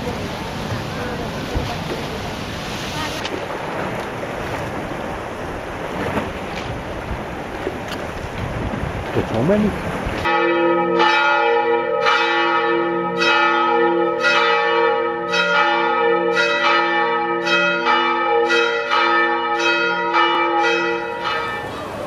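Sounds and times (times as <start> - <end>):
church bells ringing: 10.2 - 22.0.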